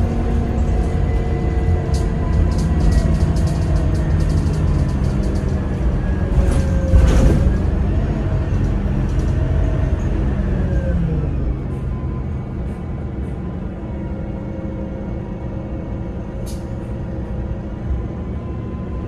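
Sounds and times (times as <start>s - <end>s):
bus engine rumble with whine: 0.0s - 19.0s
light rattling clicks: 1.9s - 5.6s.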